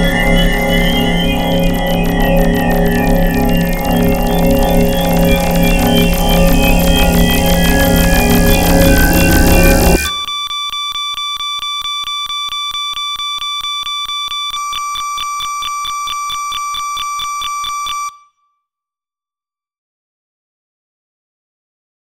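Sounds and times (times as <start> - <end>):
electronic alarm tone: 0.0 - 18.3.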